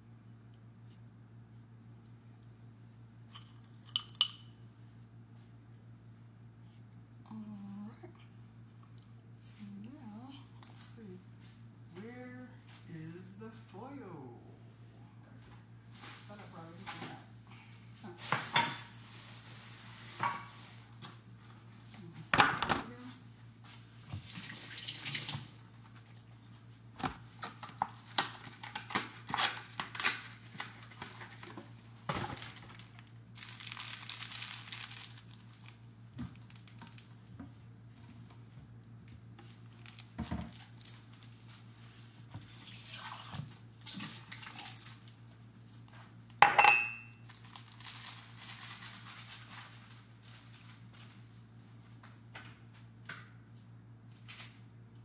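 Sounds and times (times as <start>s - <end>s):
steady low hum: 0.0s - 24.2s
dishes and utensils clinking: 3.3s - 4.5s, 46.4s - 47.2s.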